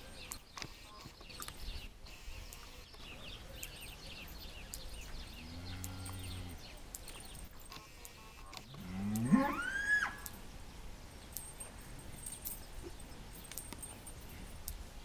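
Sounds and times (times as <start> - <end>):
small birds chirping: 0.0 - 9.4, 10.2 - 15.0
cow mooing: 5.4 - 6.6, 8.7 - 10.2.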